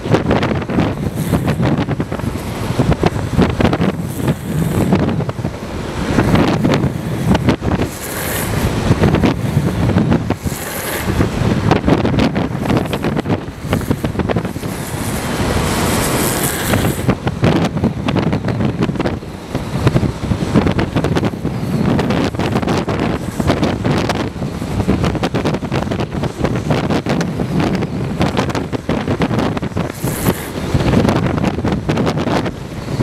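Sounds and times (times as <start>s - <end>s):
longboard wheels rolling on asphalt: 0.0s - 33.0s
wheels sliding hiss: 0.0s - 33.0s
wind buffeting microphone: 0.0s - 33.0s.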